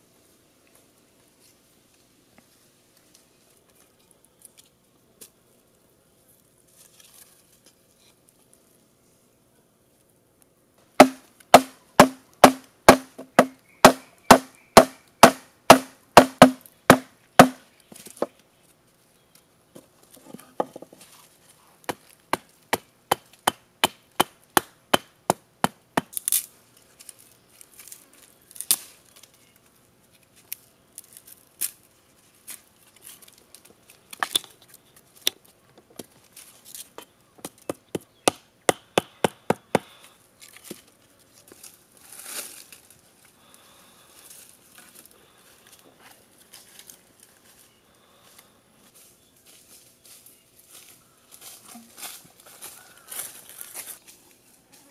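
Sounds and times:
blade chopping wooden stick: 11.0s - 17.6s, 37.4s - 39.9s.

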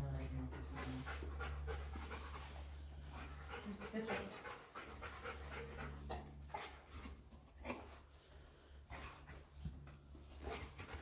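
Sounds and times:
dog panting and sniffing: 0.0s - 11.0s.

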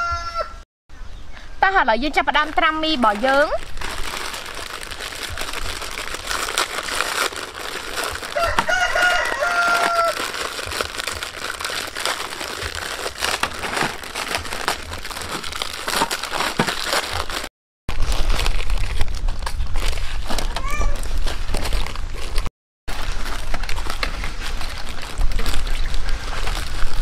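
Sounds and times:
rooster crowing: 0.0s - 0.6s, 8.2s - 10.3s
plastic packets crinkling: 2.5s - 27.0s.

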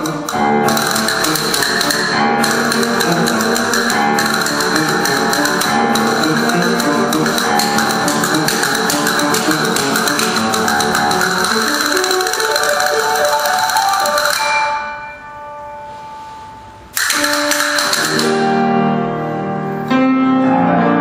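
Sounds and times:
castanets clicking: 0.0s - 14.5s, 17.0s - 18.4s.

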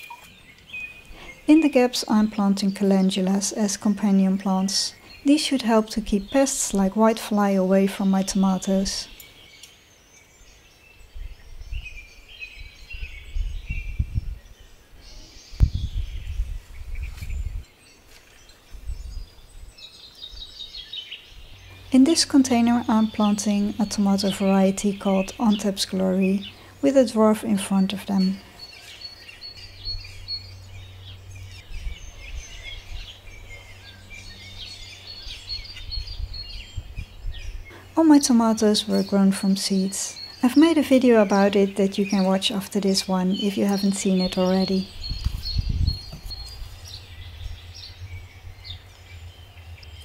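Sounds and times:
small birds chirping: 0.0s - 50.0s
steady low rumble: 29.3s - 50.0s
low dull thumps and rumbling: 44.9s - 49.9s.

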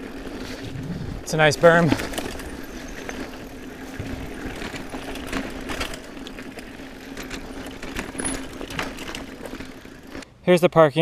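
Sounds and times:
bicycle freehub buzzing: 0.0s - 10.2s
bike rattling over bumps: 0.0s - 10.2s
tyre noise on dirt: 0.0s - 10.2s.

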